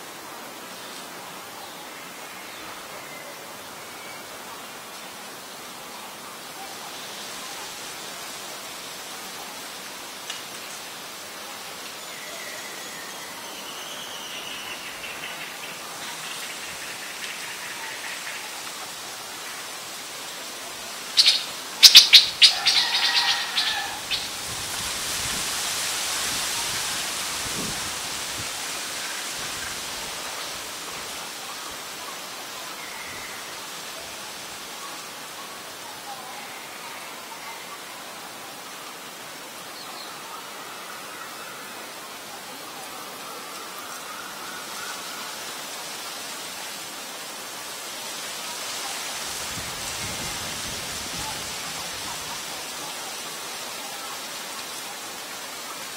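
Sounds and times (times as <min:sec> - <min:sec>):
steady outdoor hiss: 0:00.0 - 0:55.9
rushing hiss: 0:14.3 - 0:35.8, 0:43.7 - 0:55.9
faint bird calls: 0:21.0 - 0:24.4.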